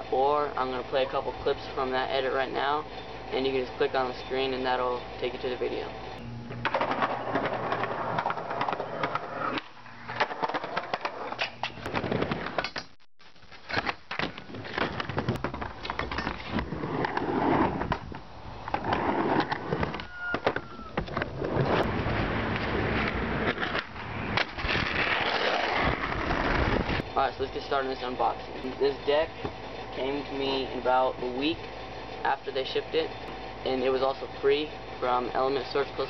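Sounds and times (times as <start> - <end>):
skateboard wheels rolling on concrete: 0.4 - 36.0.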